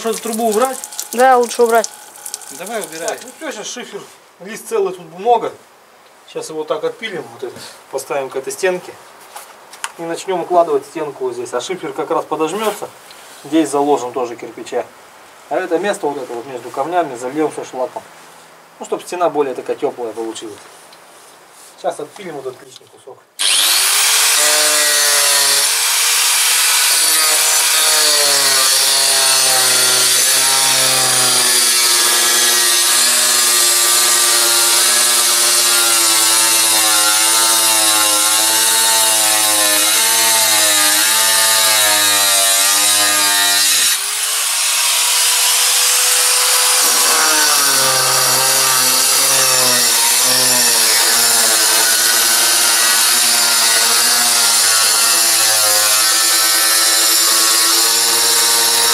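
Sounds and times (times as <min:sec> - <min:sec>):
power saw cutting slate sheet: 0:00.0 - 0:03.6, 0:23.4 - 0:58.9
saw motor whining: 0:23.4 - 0:58.9.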